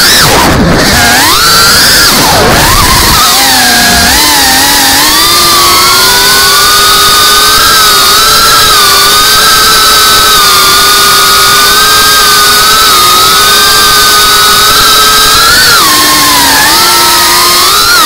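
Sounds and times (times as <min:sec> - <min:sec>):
drone motors whining: 0:00.0 - 0:18.0.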